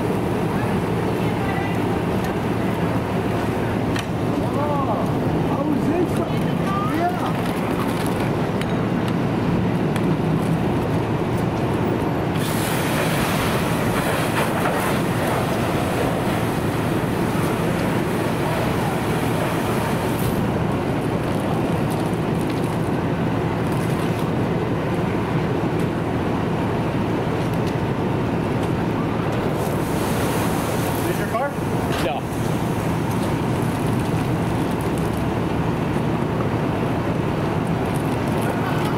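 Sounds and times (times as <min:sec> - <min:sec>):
pump engine droning: 0:12.2 - 0:38.9
hose spraying water hiss: 0:12.4 - 0:20.4, 0:29.6 - 0:34.5.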